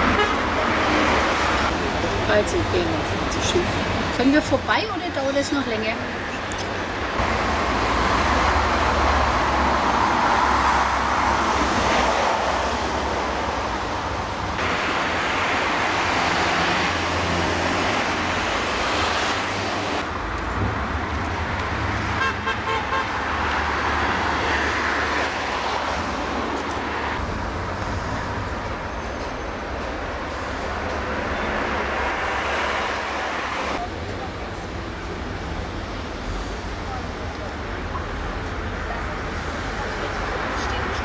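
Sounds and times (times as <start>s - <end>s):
steady low traffic rumble: 0.0s - 41.0s
cars driving past: 5.6s - 41.0s.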